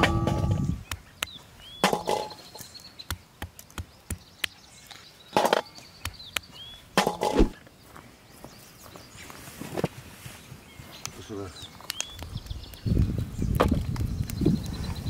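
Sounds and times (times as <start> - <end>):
stone knocking chestnuts on rock: 0.0 - 4.6, 5.3 - 7.5, 13.5 - 14.1.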